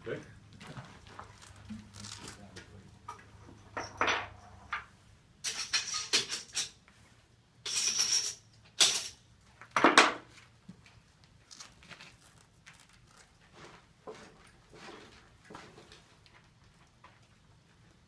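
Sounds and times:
metallic clinking and rattling: 5.4s - 6.8s, 7.6s - 9.2s.

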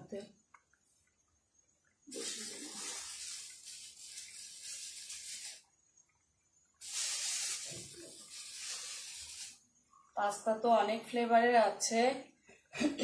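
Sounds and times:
pasta boiling in water: 0.4s - 10.2s.

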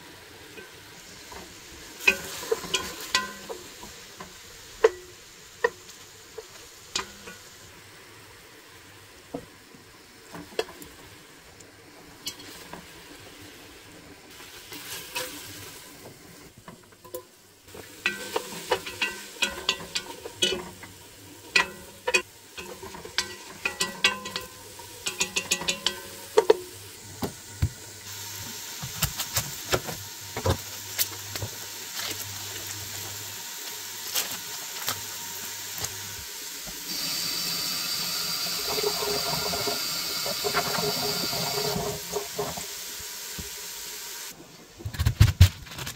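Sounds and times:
meat sizzling: 0.0s - 44.4s
wooden spoon scraping metal pot: 18.0s - 26.7s.

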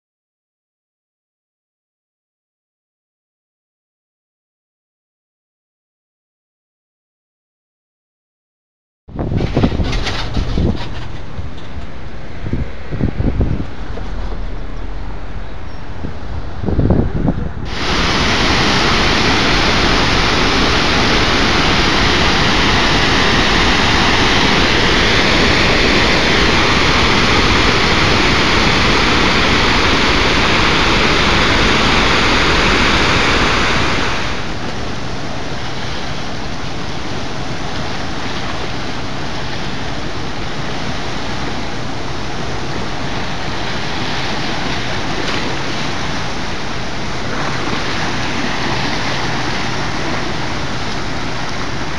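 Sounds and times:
rapids churning: 9.3s - 51.9s
floodwater pouring over dam: 17.6s - 51.9s.

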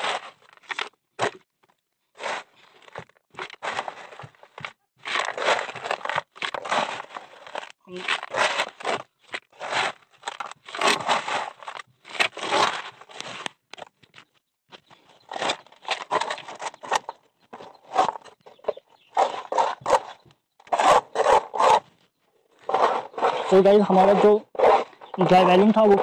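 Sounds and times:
trowel scraping wet concrete: 5.0s - 13.4s, 19.1s - 21.9s, 22.6s - 26.0s.

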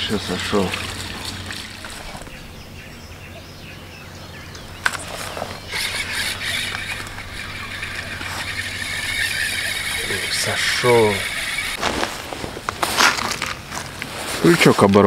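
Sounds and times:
spinning reel whirring: 4.8s - 11.8s.

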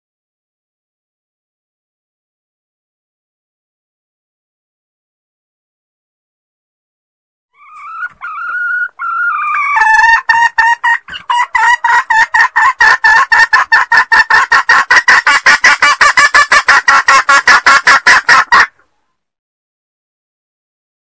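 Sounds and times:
hen calling and clucking: 7.6s - 19.1s.

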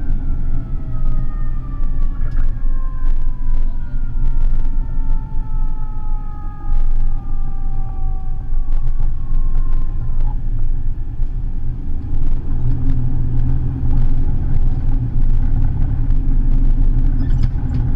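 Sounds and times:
fire engine siren winding down: 0.0s - 10.5s
diesel engine rumbling: 0.0s - 17.9s.

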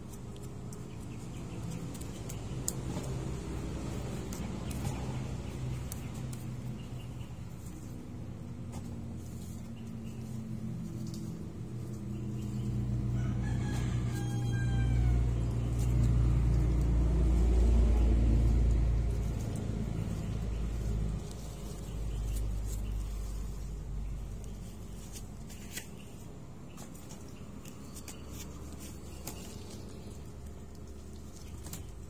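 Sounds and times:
engine rumble: 0.0s - 32.0s
rooster crowing: 13.0s - 15.7s.

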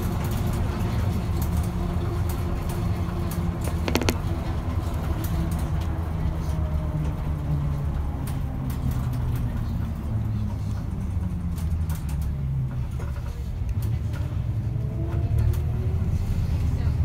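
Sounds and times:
bus engine and road rumble: 0.0s - 17.0s.

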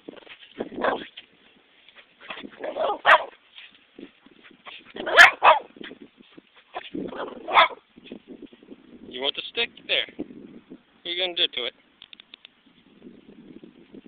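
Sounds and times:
small dog barking: 0.8s - 1.1s, 2.6s - 3.4s, 5.0s - 5.7s, 6.8s - 7.8s.

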